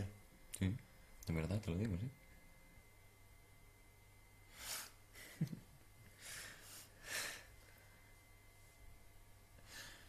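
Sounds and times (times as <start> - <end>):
men laughing softly: 5.1 - 6.1
low chuckle: 5.2 - 5.8.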